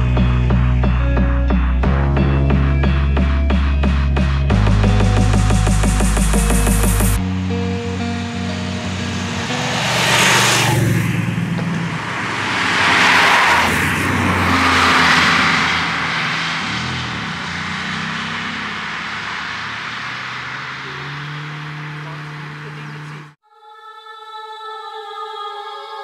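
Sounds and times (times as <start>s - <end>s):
vehicles passing by: 0.0s - 23.4s
motorcycle passing by: 6.1s - 23.4s.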